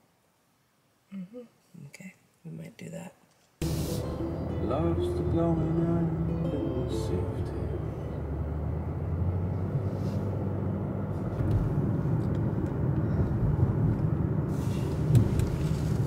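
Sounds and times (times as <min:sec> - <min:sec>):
car tyre and engine rumble: 0:07.7 - 0:16.0.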